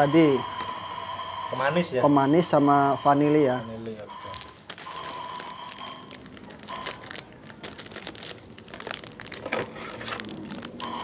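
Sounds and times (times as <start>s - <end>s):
plastic sachet crinkling: 3.8s - 11.0s.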